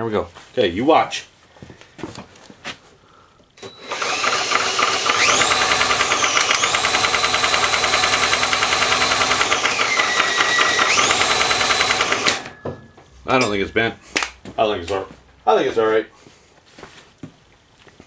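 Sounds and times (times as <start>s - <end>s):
engine turning over pulsing: 3.6s - 12.5s
power drill motor whining: 3.6s - 12.6s.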